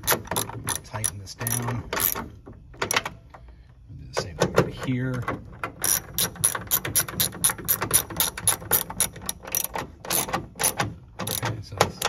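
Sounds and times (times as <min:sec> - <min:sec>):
socket ratchet clicking: 0:00.0 - 0:02.3, 0:05.7 - 0:12.0.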